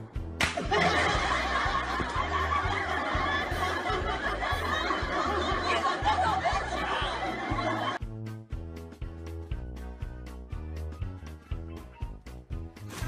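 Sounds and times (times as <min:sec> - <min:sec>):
crowd laughter: 0:00.4 - 0:08.0.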